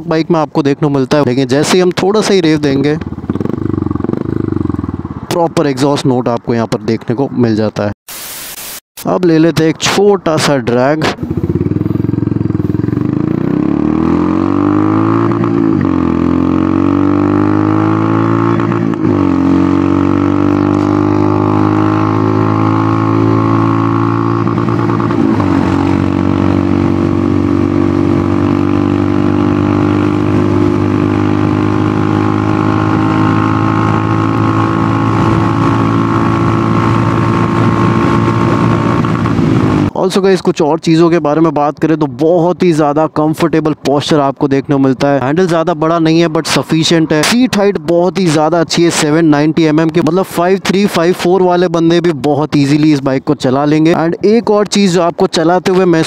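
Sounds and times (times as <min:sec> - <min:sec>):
motorcycle engine accelerating: 0:02.2 - 0:05.9, 0:10.6 - 0:40.0.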